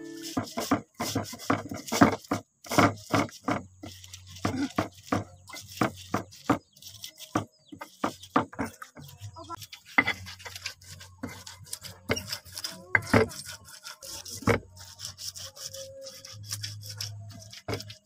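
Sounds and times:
stone pestle pounding in mortar: 0.2s - 3.7s, 4.4s - 9.0s.

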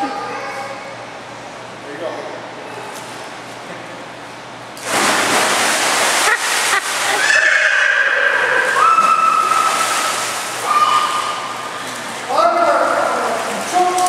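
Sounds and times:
person splashing into pool: 4.8s - 12.2s
water churning and sloshing: 4.8s - 14.0s
high-pitched cries: 7.1s - 9.5s, 10.6s - 11.6s.

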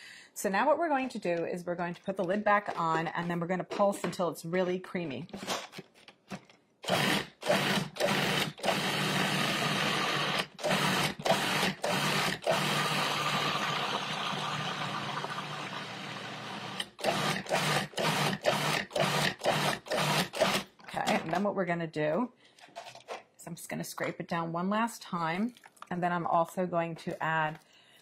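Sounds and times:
food processor motor whirring: 6.8s - 20.7s.

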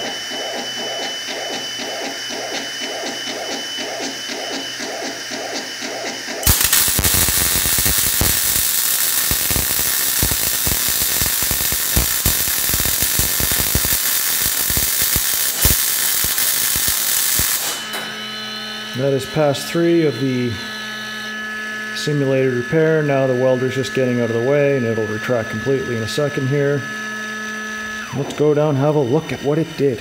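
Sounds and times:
welding arc crackling and sizzling: 4.9s - 18.0s.

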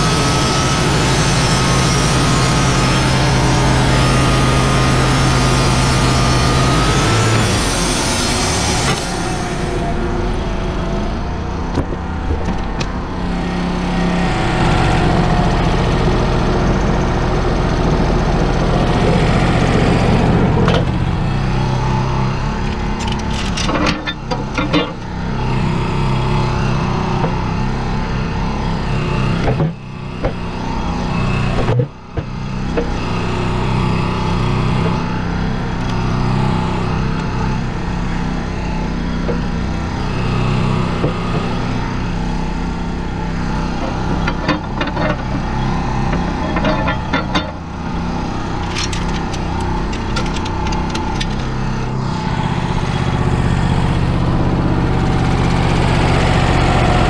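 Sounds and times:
sawmill engine running: 0.0s - 57.0s
knocks and clanks: 11.7s - 13.2s, 22.6s - 25.1s, 43.8s - 47.7s, 48.5s - 51.7s.

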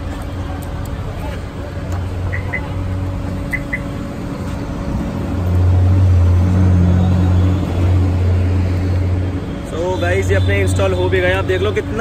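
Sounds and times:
high chirps: 3.5s - 3.9s.

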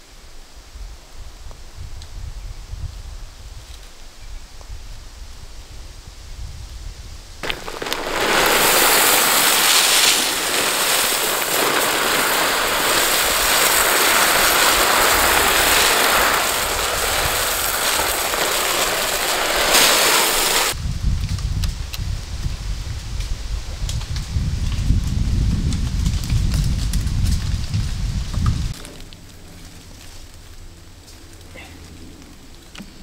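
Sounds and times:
corn kernels pouring onto pile: 7.4s - 20.8s.

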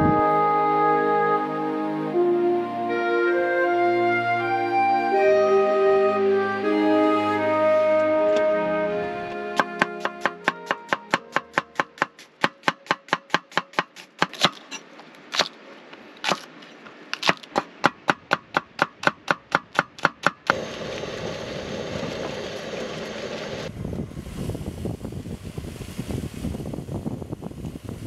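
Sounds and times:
wind and surf: 0.0s - 12.5s, 20.5s - 28.0s
rapid chopping strokes: 9.6s - 15.5s, 17.2s - 20.6s.

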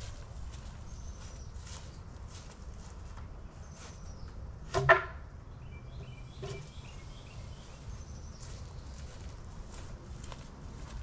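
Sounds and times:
footsteps on dry grass: 0.0s - 4.5s, 7.4s - 11.0s.

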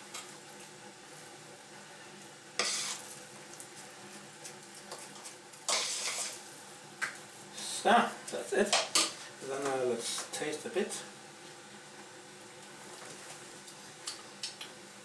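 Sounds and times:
spoon stirring wet mixture in pot: 2.6s - 3.8s, 4.4s - 6.4s.

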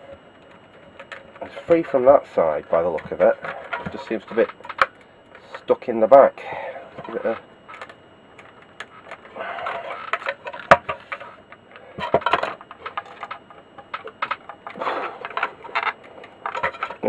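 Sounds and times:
circuit board scraping metal case: 7.0s - 17.0s.

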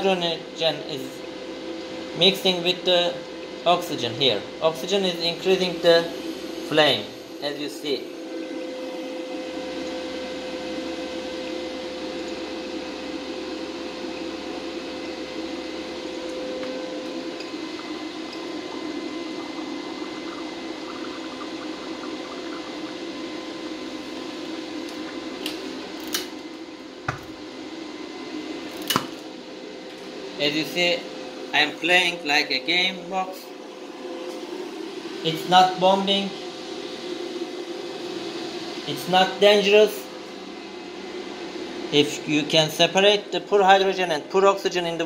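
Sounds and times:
faint steady hum: 0.0s - 45.0s
gas bubbling through water: 14.0s - 25.4s.

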